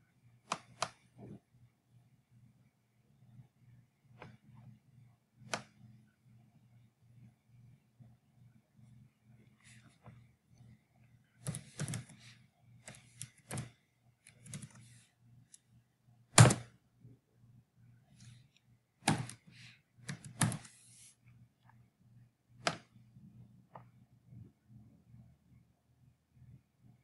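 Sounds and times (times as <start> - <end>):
computer keyboard clacking: 11.4 - 12.1, 14.3 - 14.8, 20.1 - 20.7.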